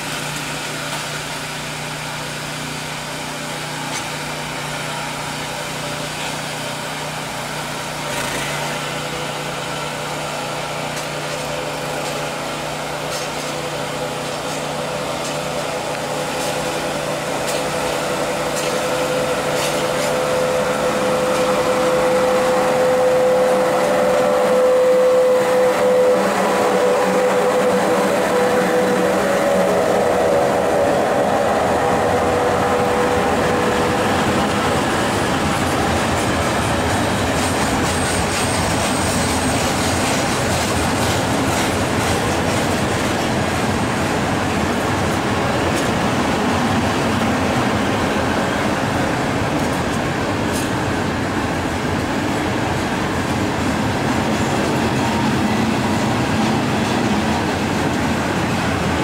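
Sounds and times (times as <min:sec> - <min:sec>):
small engine running: 0:00.0 - 0:43.6
electric locomotive humming: 0:00.0 - 0:59.0
train wheels on rails: 0:00.0 - 0:59.0.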